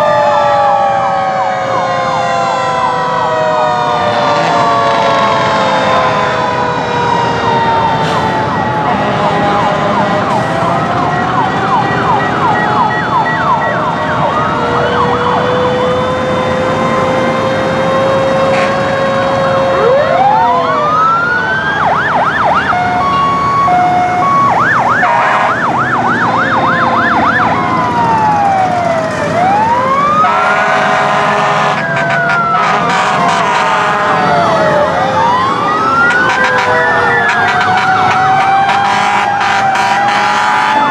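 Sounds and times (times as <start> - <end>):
sirens wailing and yelping: 0.0 - 40.9
rumble of engines and tyres: 1.1 - 39.5
vehicle horn: 8.9 - 10.5, 18.5 - 18.9, 25.0 - 25.6, 30.3 - 34.2, 37.3 - 40.9.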